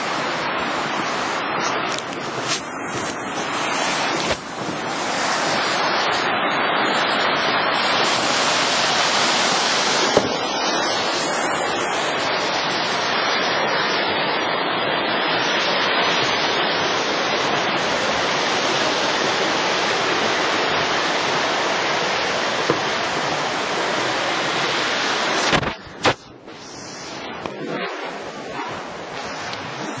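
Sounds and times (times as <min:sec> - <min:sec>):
rushing river water roar: 0:00.0 - 0:30.0.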